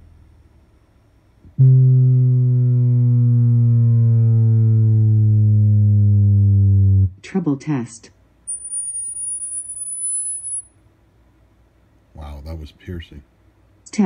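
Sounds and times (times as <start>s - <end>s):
buzzy low test tone: 0.0s - 7.2s.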